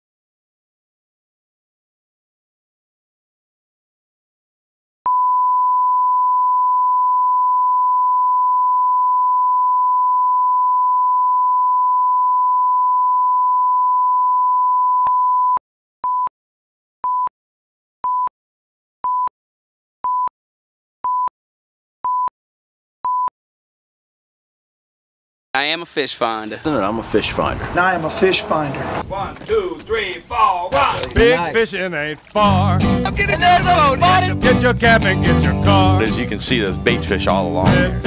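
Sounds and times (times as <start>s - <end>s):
short beeps: 5.1s - 16.3s.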